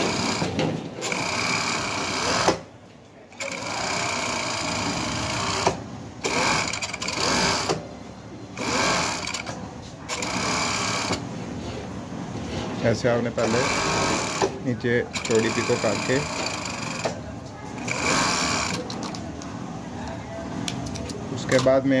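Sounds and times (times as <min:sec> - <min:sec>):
overlock sewing machine stitching: 0:00.0 - 0:02.6, 0:03.4 - 0:07.8, 0:08.6 - 0:09.5, 0:13.4 - 0:14.5, 0:15.1 - 0:17.2.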